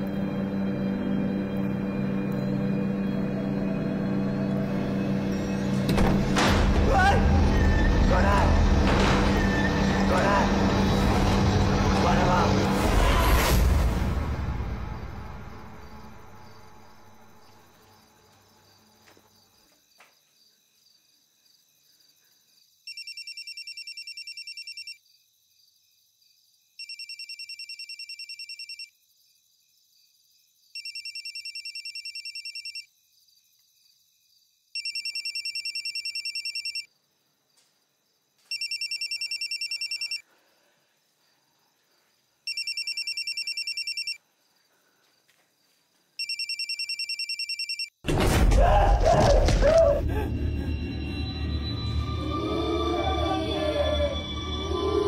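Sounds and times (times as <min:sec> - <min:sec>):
music: 0:00.0 - 0:17.5, 0:48.6 - 0:55.0
mobile phone ringtone: 0:22.9 - 0:25.0, 0:26.8 - 0:28.9, 0:30.8 - 0:32.9, 0:34.8 - 0:36.9, 0:38.5 - 0:40.2, 0:42.5 - 0:44.2, 0:46.2 - 0:48.0.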